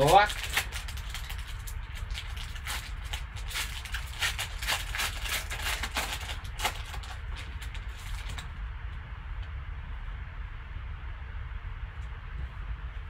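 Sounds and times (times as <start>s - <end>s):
foil wrapper crinkling and tearing: 0.0s - 8.5s
low steady hum: 0.0s - 13.0s.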